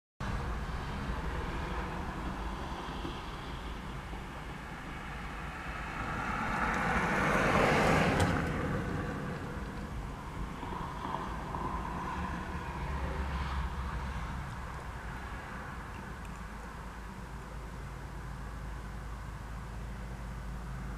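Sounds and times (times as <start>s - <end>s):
car passing by: 0.2s - 16.3s.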